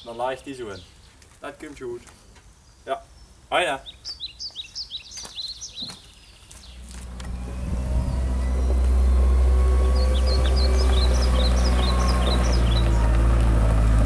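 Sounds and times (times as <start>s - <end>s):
small birds chirping: 0.0s - 13.9s
loader engine running: 6.6s - 14.0s.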